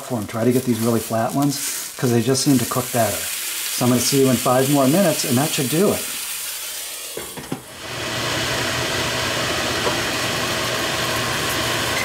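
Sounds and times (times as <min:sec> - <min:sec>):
range hood fan humming: 0:00.2 - 0:12.0.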